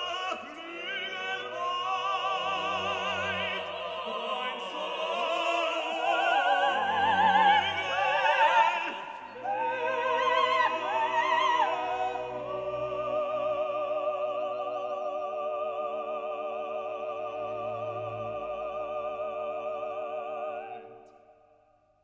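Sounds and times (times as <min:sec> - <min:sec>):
operatic classical music: 0:00.0 - 0:21.4.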